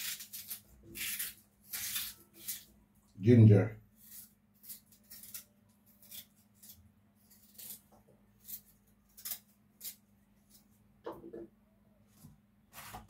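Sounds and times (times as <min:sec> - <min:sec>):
knife scraping ginger: 0:00.0 - 0:02.8, 0:03.9 - 0:10.8.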